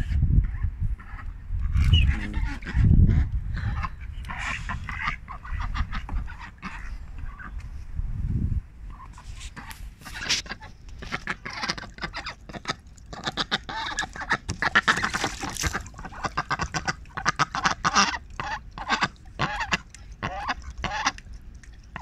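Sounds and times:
ducks quacking: 1.0 - 7.6, 8.9 - 21.2
water splashing: 10.0 - 22.0.

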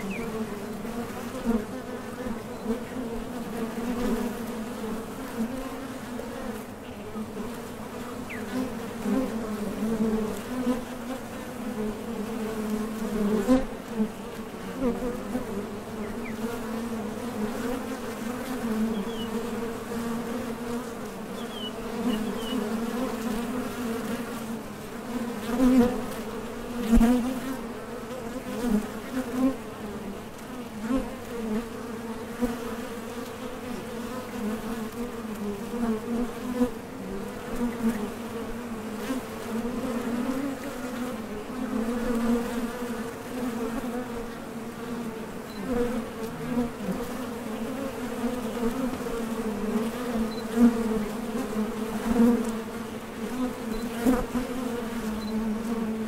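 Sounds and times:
honey bees buzzing: 0.0 - 56.0.

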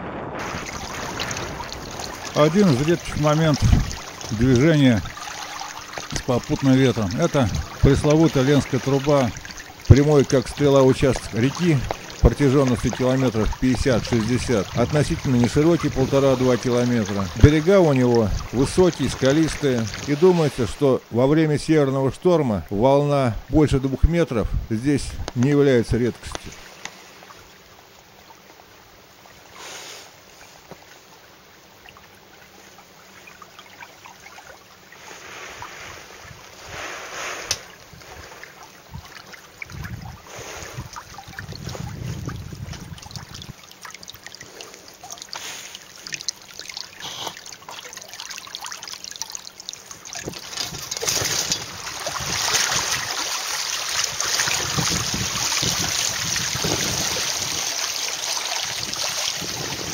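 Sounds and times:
water splashing against hulls: 0.0 - 28.6, 30.1 - 59.9.

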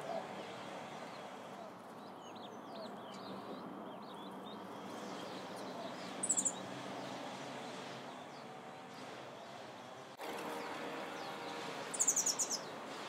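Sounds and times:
very high chirp: 6.2 - 6.6, 11.9 - 12.7.

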